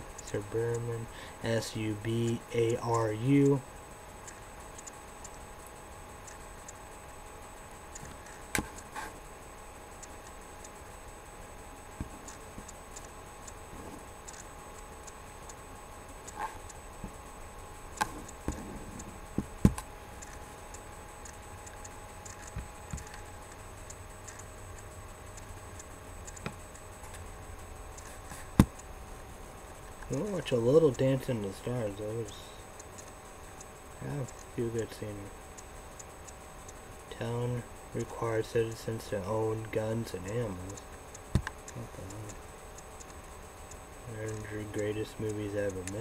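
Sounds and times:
steady faint hum: 0:00.0 - 0:46.0
computer mouse clicks: 0:04.2 - 0:06.8, 0:07.8 - 0:09.2, 0:09.9 - 0:10.8, 0:11.9 - 0:17.2, 0:17.9 - 0:27.2, 0:32.8 - 0:33.2.

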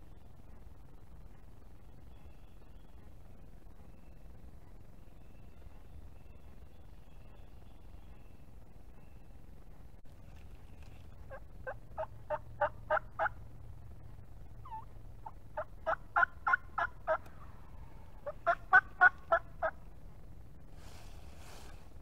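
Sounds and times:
turkey yelping: 0:11.2 - 0:13.4, 0:14.6 - 0:19.8.

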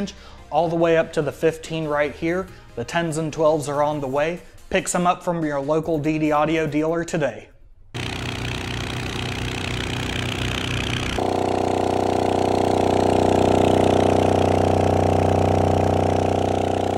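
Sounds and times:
buzzy subwoofer bass drone: 0:08.0 - 0:16.9.

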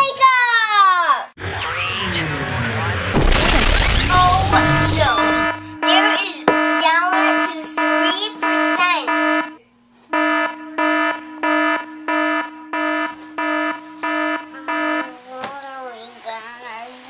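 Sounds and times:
warbling tones sweeping: 0:01.4 - 0:06.0
electronic alarm beeping: 0:01.4 - 0:15.2.

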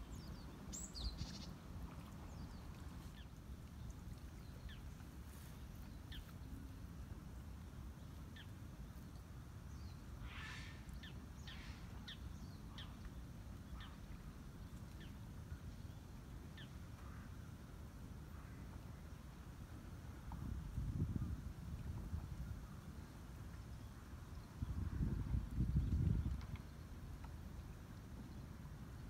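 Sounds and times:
small birds chirping: 0:00.0 - 0:06.8.

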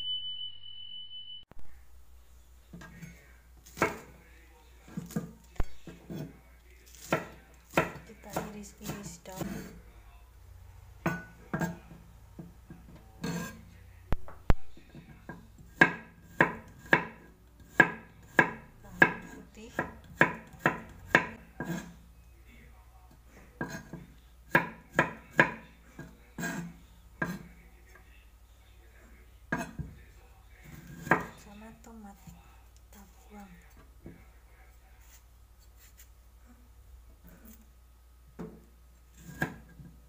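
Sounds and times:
knife chopping on wooden board: 0:03.7 - 0:04.1, 0:06.9 - 0:09.8, 0:15.3 - 0:21.9, 0:23.6 - 0:27.5, 0:39.2 - 0:39.7.

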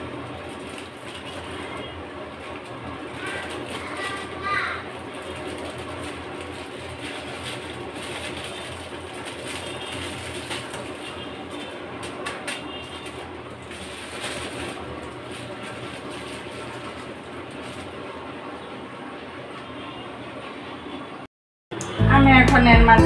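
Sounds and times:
plastic packet crackling: 0:00.0 - 0:18.1
water boiling in pot: 0:00.0 - 0:19.4.

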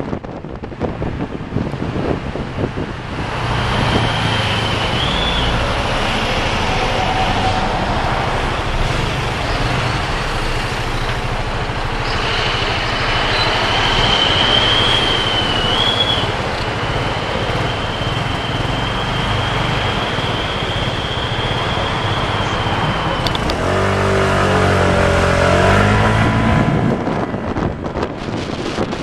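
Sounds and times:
wind buffeting microphone: 0:00.0 - 0:12.0, 0:22.6 - 0:29.0
road traffic: 0:00.0 - 0:29.0
engine revving and pulling away: 0:02.4 - 0:28.9.

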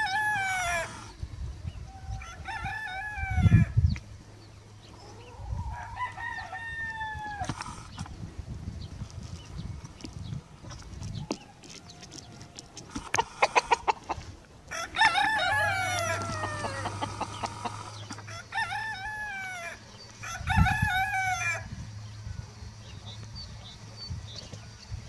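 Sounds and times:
roosters crowing: 0:00.0 - 0:01.2, 0:01.8 - 0:03.8, 0:04.8 - 0:08.2, 0:11.2 - 0:22.2.

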